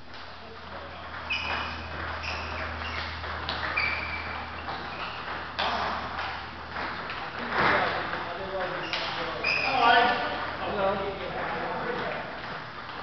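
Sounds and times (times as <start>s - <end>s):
table tennis balls clicking: 0.6s - 10.8s.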